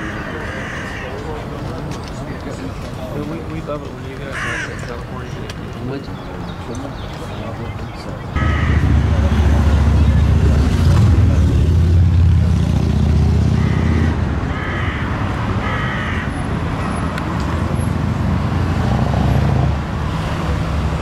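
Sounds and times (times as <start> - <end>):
vehicle engine rumbling: 6.5 - 21.0.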